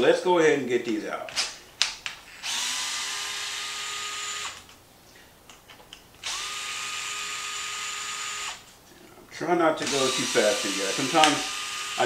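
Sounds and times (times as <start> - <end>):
cordless screwdriver whining: 2.4 - 4.8, 6.2 - 8.7, 9.8 - 12.0.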